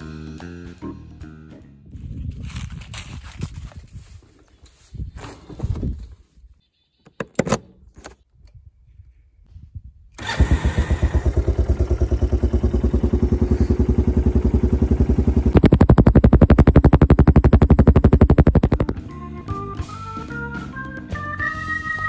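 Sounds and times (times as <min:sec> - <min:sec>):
atv engine running: 0:10.2 - 0:19.0.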